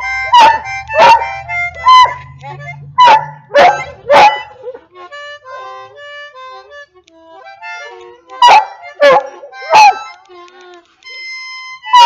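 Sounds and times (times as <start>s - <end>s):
harmonica playing notes: 0.0s - 12.0s
dog calling: 0.3s - 2.3s, 3.0s - 4.9s, 8.4s - 10.1s.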